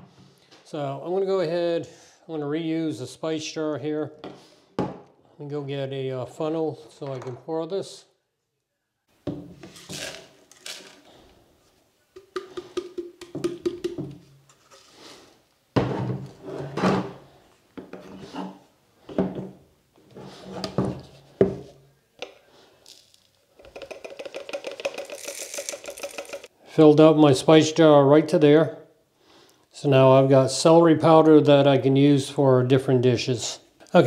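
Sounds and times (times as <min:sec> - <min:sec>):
plastic kitchenware knocking and rubbing: 0:23.6 - 0:26.5
powder poured into glass jar: 0:24.1 - 0:26.5.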